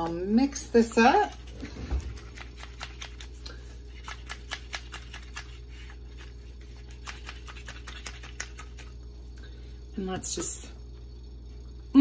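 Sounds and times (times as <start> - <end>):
low hum: 4.9 - 12.0.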